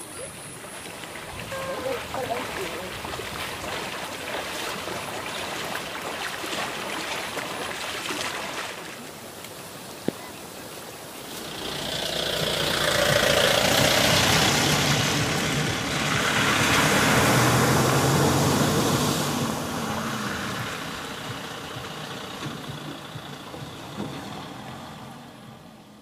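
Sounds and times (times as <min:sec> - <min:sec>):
vehicle engine running: 0:11.2 - 0:26.0.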